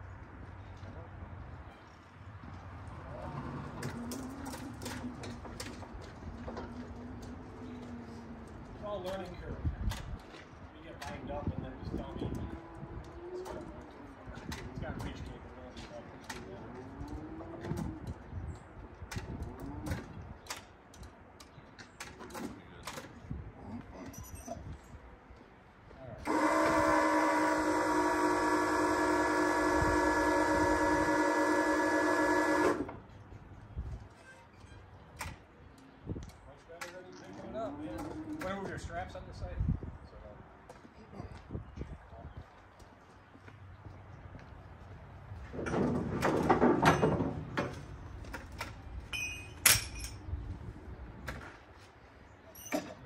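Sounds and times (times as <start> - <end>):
hydraulic pump electric whine: 26.2 - 33.0
metal ratchet dropped on pavement: 49.1 - 50.2.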